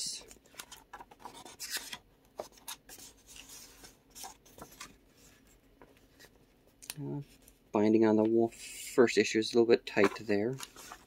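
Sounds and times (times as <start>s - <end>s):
pages turning: 0.2s - 6.4s, 9.9s - 11.0s.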